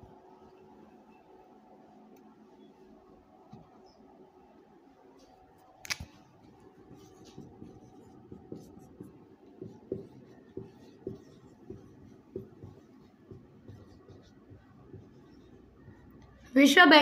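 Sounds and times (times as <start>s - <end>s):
marker pen click: 5.8s - 6.1s
marker writing on whiteboard: 6.2s - 16.6s.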